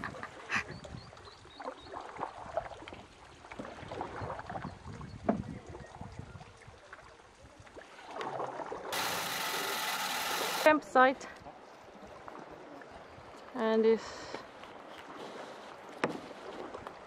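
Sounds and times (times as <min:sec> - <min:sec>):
water lapping at hull: 0:00.0 - 0:09.0, 0:14.4 - 0:17.0
canoe paddle strokes in water: 0:01.6 - 0:10.7, 0:14.5 - 0:17.0.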